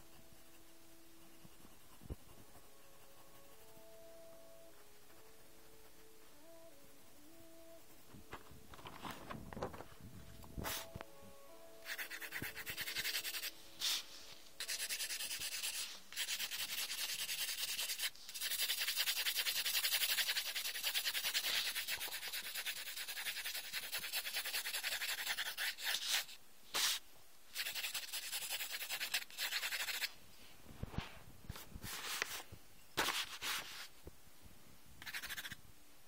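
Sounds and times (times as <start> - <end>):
pencil shading on paper: 0.0 - 6.7, 11.8 - 26.4, 27.6 - 30.1, 35.0 - 35.6.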